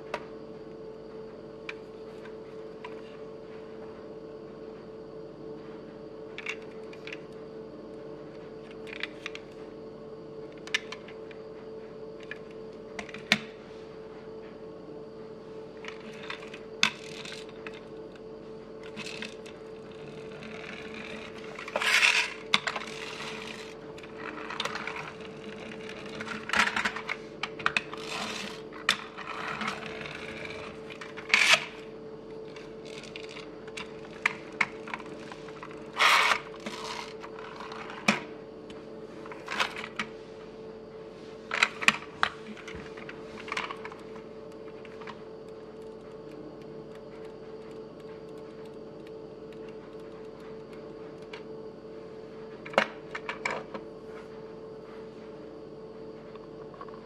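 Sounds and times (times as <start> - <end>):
faint steady hum: 0.0 - 57.0
small wheels rolling on table: 15.9 - 17.8, 18.8 - 31.9, 32.5 - 38.2.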